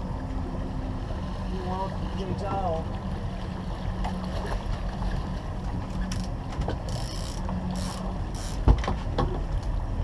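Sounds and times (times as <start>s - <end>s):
boat motor humming: 0.0s - 10.0s
reel clicks: 5.9s - 9.8s
fishing reel drag buzzing: 6.9s - 8.6s.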